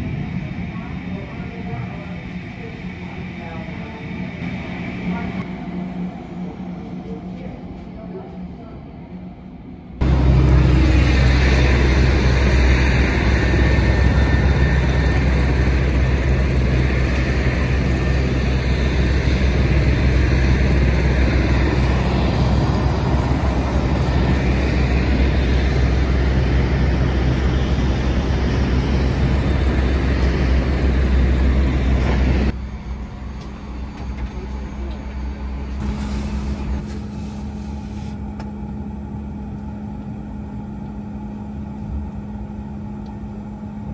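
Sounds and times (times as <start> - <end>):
truck engine humming: 10.0 - 43.9.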